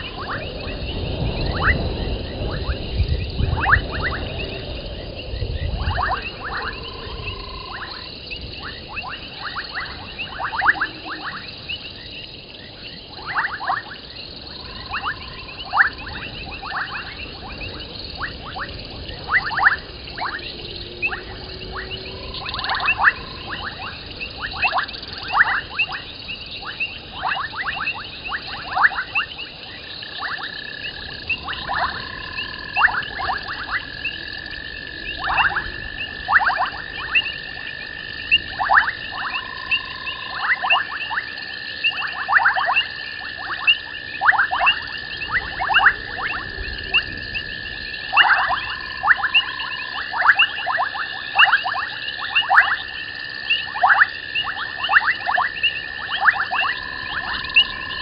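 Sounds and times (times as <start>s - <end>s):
frogs and insects chirping: 0.0s - 58.0s.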